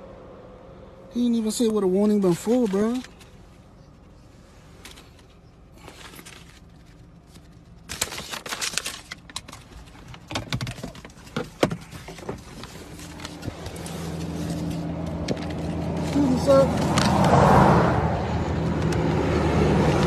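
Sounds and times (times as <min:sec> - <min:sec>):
car engine hum: 0:00.0 - 0:20.0
paper and phone rustling: 0:02.0 - 0:03.4, 0:04.7 - 0:17.3.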